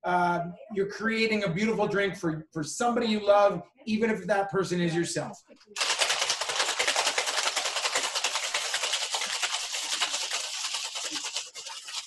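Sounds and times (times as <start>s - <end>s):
ice rattling in cocktail shaker: 5.8s - 12.0s.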